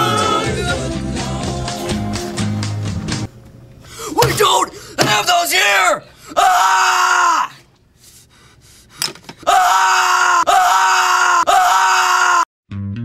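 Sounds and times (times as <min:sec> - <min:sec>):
boy screaming: 0:04.2 - 0:07.6, 0:09.4 - 0:12.5.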